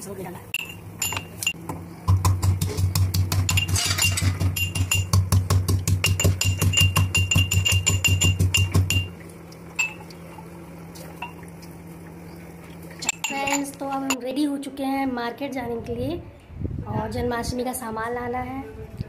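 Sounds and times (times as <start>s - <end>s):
metal pestle pounding in mortar: 2.1s - 9.1s.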